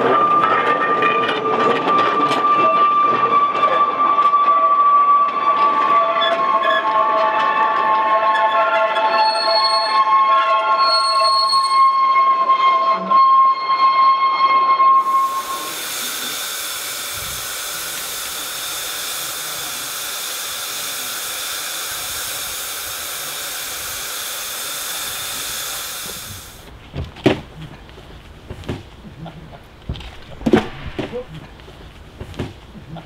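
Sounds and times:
steam locomotive whistle: 0:00.0 - 0:26.6
steam hissing: 0:14.9 - 0:26.7, 0:29.9 - 0:33.0.

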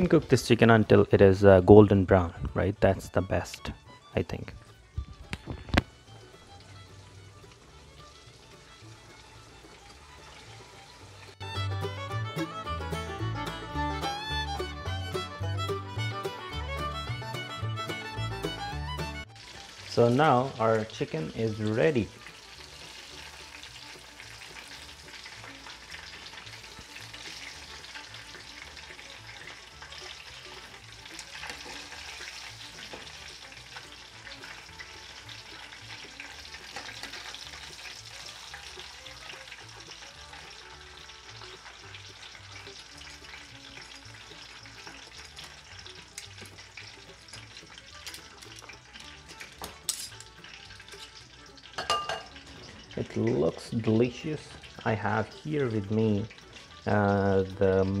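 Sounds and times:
faint background music: 0:00.0 - 0:58.0
hot oil sizzling and crackling: 0:00.0 - 0:58.0.

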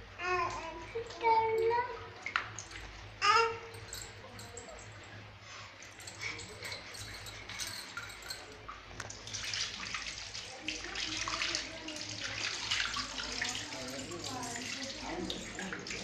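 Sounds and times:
water splashing on tiled floor: 0:06.2 - 0:16.0.

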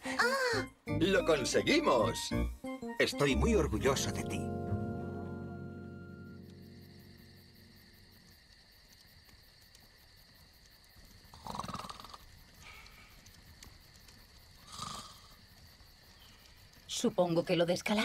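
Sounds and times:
music cue: 0:00.5 - 0:08.0.

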